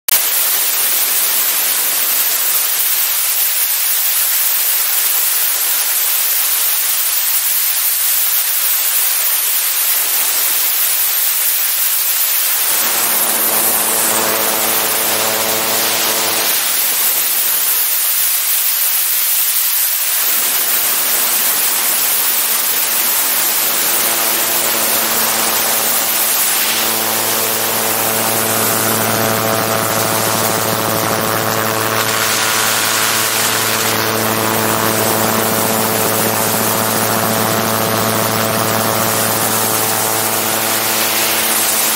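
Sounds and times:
aircraft engine and propeller drone: 12.6 - 16.6, 20.4 - 41.9.

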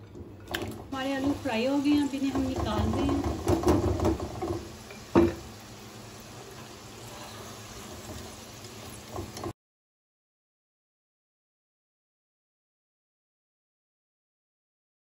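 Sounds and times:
potatoes sizzling in hot fat: 0.9 - 9.6
utensil knocking: 2.2 - 5.4.

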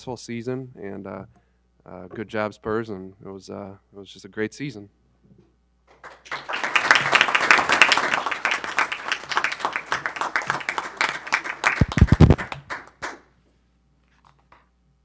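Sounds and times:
people clapping: 5.9 - 13.3.

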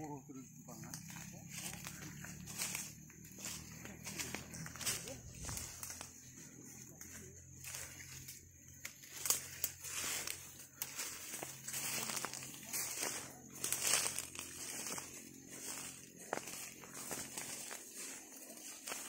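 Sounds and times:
leaves and twigs crackling: 0.0 - 19.0
undergrowth rustling and swishing: 0.8 - 19.0.

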